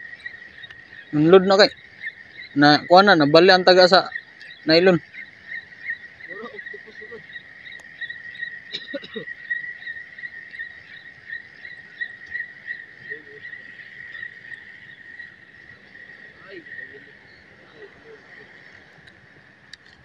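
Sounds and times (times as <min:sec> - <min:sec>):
high-pitched trilling animal chorus: 0:00.0 - 0:19.7.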